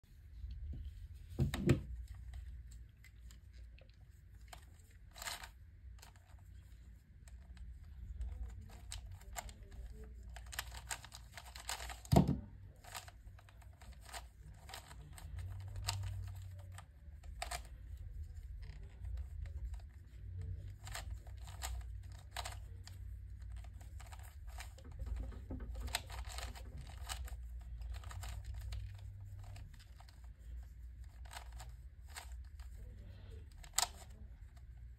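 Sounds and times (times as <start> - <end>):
puzzle cube clicking: 4.5 - 6.2, 8.3 - 17.7, 20.6 - 30.2, 33.5 - 34.2.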